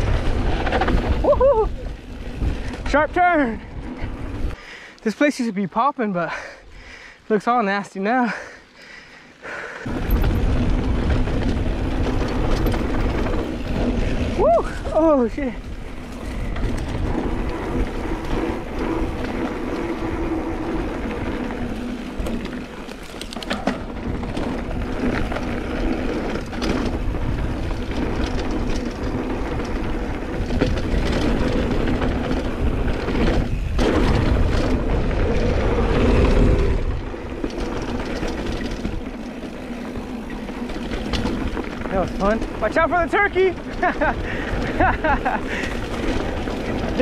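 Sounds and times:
tyres rolling over dirt: 0.0s - 4.6s, 9.9s - 47.0s
wind buffeting microphone: 0.0s - 4.6s, 9.8s - 22.6s, 23.8s - 47.0s
bike rattling and knocking: 9.9s - 47.0s.

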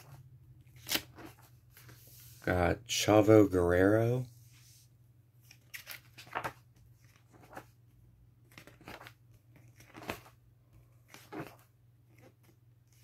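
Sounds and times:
book pages turning: 0.0s - 2.4s, 5.4s - 13.0s.

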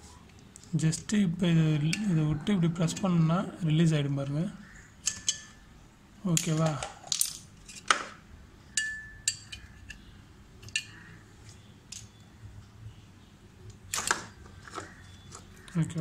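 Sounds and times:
wires shifting: 6.2s - 8.2s
plastic relay clicks and clinks: 6.3s - 7.4s.

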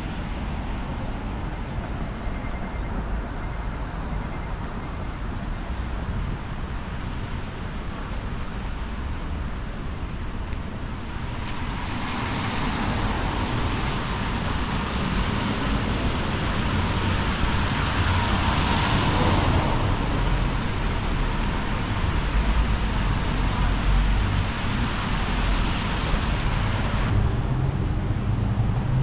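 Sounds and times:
steady low rumble: 21.8s - 29.0s.

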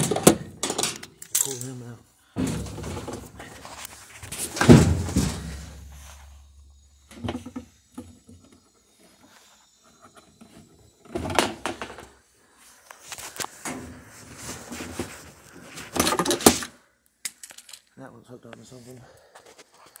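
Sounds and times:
low ringing hum: 0.4s - 12.8s
washer cabinet clunks and rattles: 2.4s - 3.5s, 4.4s - 5.7s.

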